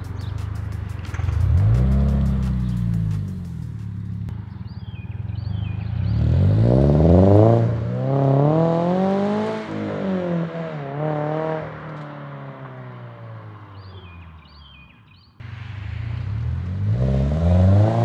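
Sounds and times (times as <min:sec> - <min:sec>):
car accelerating with gear changes: 0:00.0 - 0:04.3, 0:05.3 - 0:13.1, 0:15.5 - 0:18.0
birds chirping faintly: 0:00.0 - 0:06.6.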